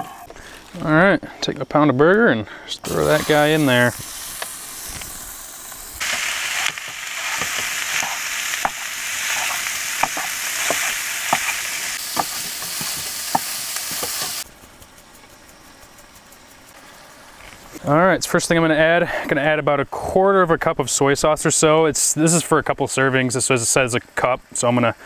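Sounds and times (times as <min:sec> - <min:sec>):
meat sizzling in a frying pan: 0:02.9 - 0:14.5
spatula tapping and scraping pan: 0:06.6 - 0:14.4.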